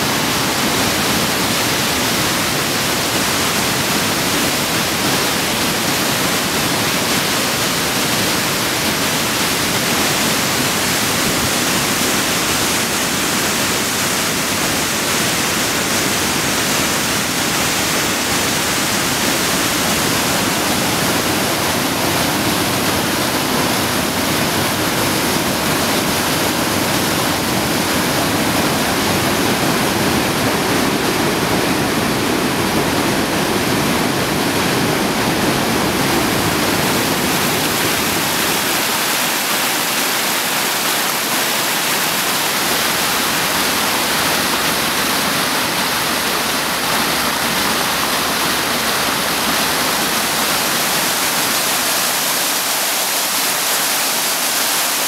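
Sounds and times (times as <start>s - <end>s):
whitewater rushing through rapids: 0.0s - 55.0s
water splashing over rock: 35.0s - 55.0s.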